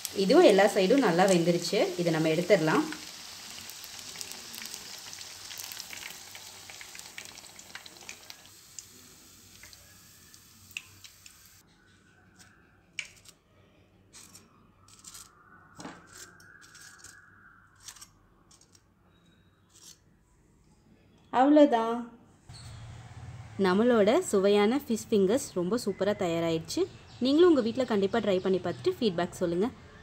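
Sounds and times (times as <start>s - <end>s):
fish sizzling in deep-frying oil: 0.0s - 11.6s.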